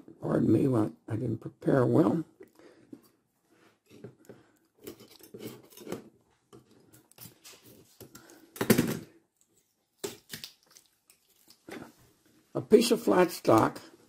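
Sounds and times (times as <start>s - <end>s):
tool scraping and rustling: 3.7s - 8.1s.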